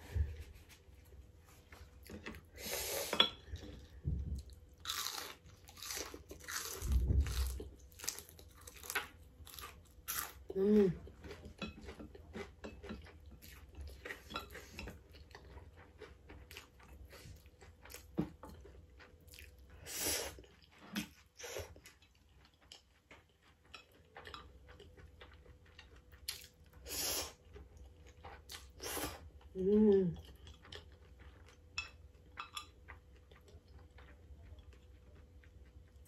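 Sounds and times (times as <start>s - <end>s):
person slurping and chewing noodles: 2.0s - 29.5s.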